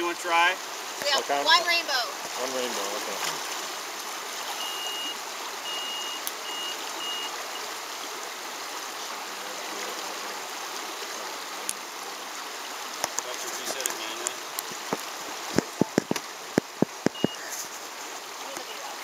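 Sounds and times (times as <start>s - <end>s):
stream water running: 0.0s - 19.0s
high steady beeps: 4.5s - 7.7s, 17.1s - 17.5s.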